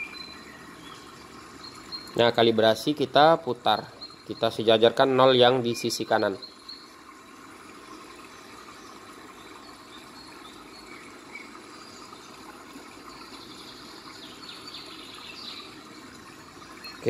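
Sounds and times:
faint high chirps: 0.0 - 4.7, 16.7 - 17.0.

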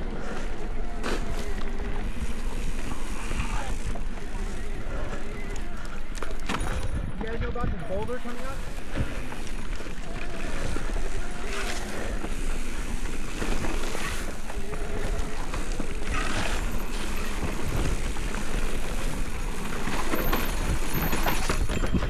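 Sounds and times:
tyre and trail noise: 0.0 - 22.0
wind buffeting microphone: 2.0 - 9.8.

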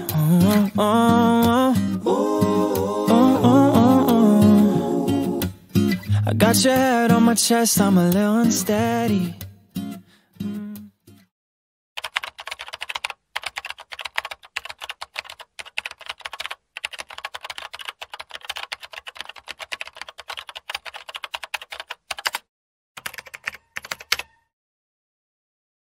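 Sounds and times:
rapid keyboard typing clicks: 12.0 - 24.3.

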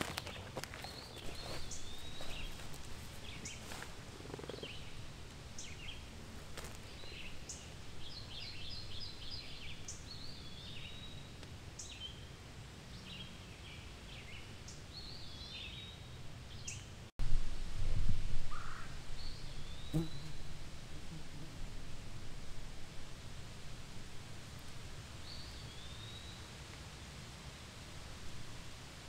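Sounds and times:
low outdoor rumble: 0.0 - 12.9, 17.0 - 29.0
songbirds chirping: 0.0 - 17.1, 18.5 - 20.7, 24.5 - 27.2.

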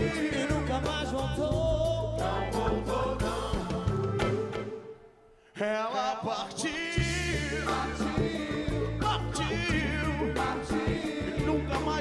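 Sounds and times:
man singing: 0.0 - 2.4, 5.5 - 12.0
soul-funk band music: 0.0 - 5.1, 6.6 - 12.0.

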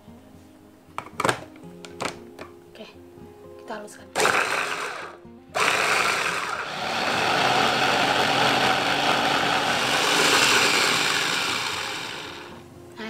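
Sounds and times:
electric food chopper running: 4.2 - 12.6.

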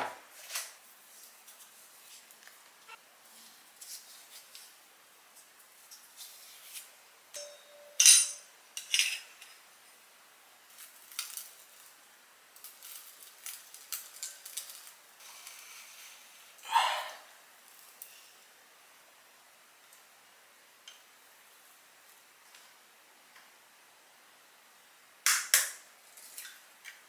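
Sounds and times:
utensils and dishes clinking: 7.4 - 9.6.

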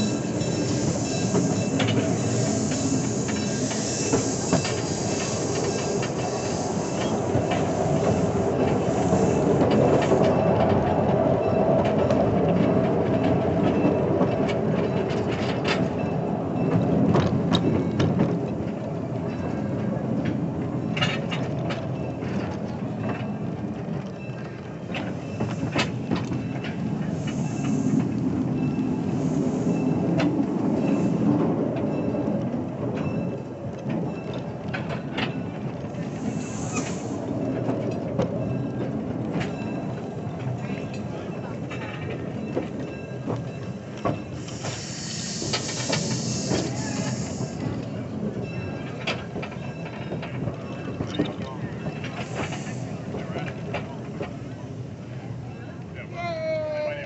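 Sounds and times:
high hiss: 0.0 - 10.2, 36.1 - 37.2, 44.3 - 47.7
wheels clacking over rail joints: 0.0 - 56.0
train wheels rumbling on rail: 0.0 - 57.0.

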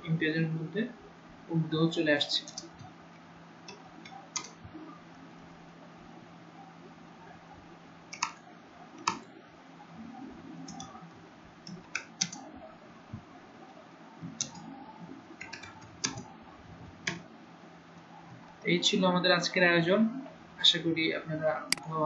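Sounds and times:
keyboard keys clicking: 2.4 - 2.9, 3.7 - 4.6, 8.1 - 8.4, 9.0 - 9.3, 10.6 - 11.0, 11.6 - 12.5, 14.3 - 14.7, 15.4 - 16.3, 17.0 - 17.3.

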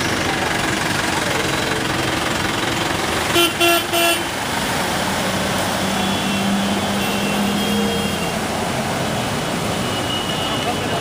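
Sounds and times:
street traffic noise: 0.0 - 11.0
truck engine humming: 0.0 - 11.0
vehicle horn toots: 3.3 - 4.3, 5.9 - 8.4.

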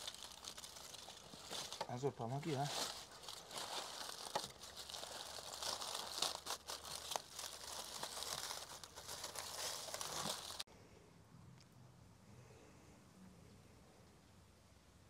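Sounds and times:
aluminium foil crinkling: 0.0 - 10.7.

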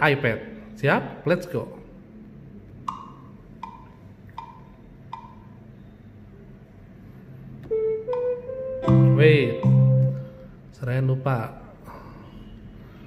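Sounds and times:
metronome clicks with pitched ring: 7.7 - 10.3.

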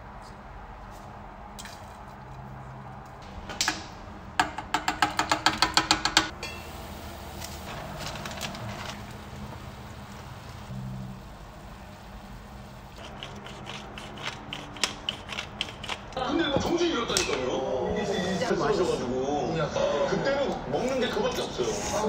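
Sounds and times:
broth boiling in a saucepan: 6.2 - 15.4.

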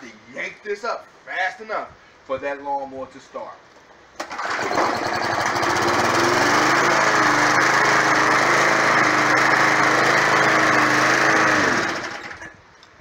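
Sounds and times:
push mower engine running: 4.2 - 12.5.

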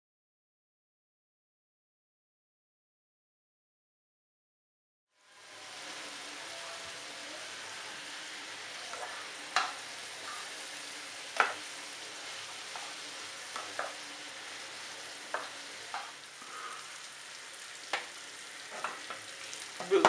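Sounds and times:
vegetables sizzling in a frying pan: 5.1 - 20.0.

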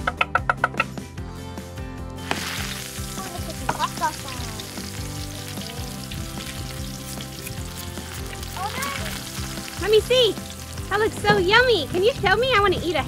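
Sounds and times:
soft background music: 0.0 - 13.0
food sizzling in a pan: 2.2 - 11.9.

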